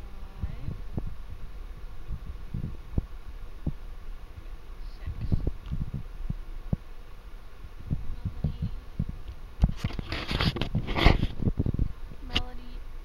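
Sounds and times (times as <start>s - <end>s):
scratchy rustling: 8.0s - 11.6s.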